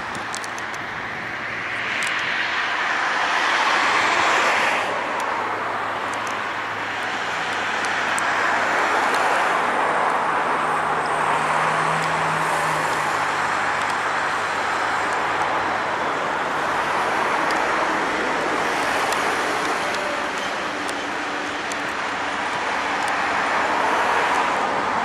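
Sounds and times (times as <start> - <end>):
diesel locomotive engine running: 9.6 - 24.0.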